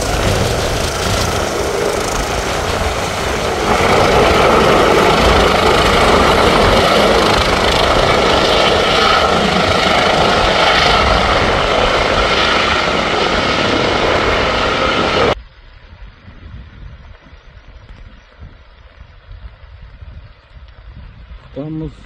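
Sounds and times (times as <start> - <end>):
helicopter rotor and turbine drone: 0.0 - 15.4.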